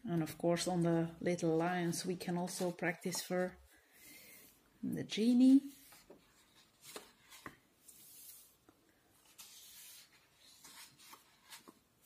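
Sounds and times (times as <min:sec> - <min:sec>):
pages being turned: 0:05.7 - 0:11.8.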